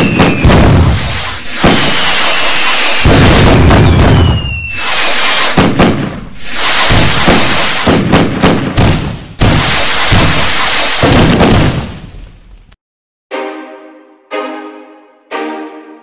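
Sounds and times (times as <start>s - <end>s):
fireworks whistling: 0.0s - 12.0s
fireworks booming and crackling: 0.0s - 12.6s.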